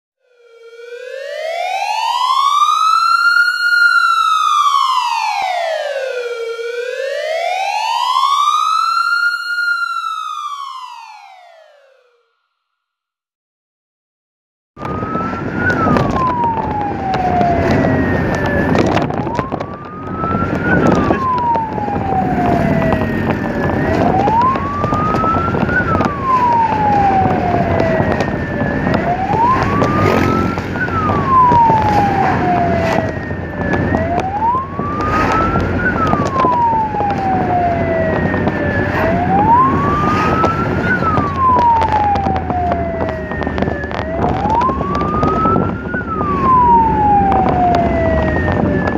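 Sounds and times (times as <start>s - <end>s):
ambulance siren wailing: 0.2s - 12.4s, 14.8s - 48.9s
road and engine noise: 14.8s - 48.9s.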